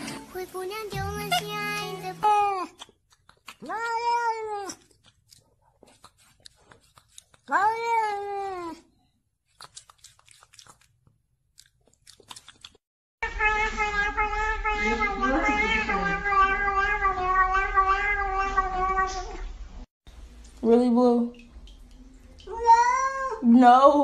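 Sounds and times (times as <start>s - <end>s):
cat meowing: 13.2s - 19.5s.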